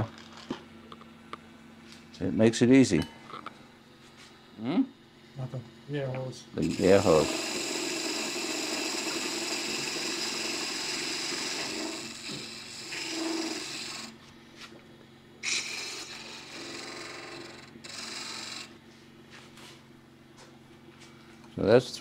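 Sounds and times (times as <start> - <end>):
lathe tool cutting wood: 6.6 - 14.2, 15.4 - 18.8.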